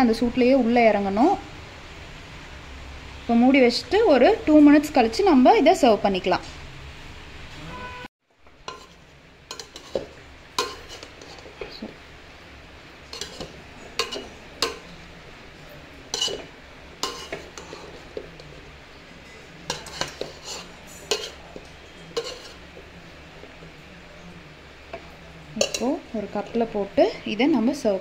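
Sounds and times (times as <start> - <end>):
metal spoon scraping metal pot: 8.6 - 11.7, 13.1 - 14.9, 16.1 - 18.6, 19.7 - 22.6, 25.6 - 26.0.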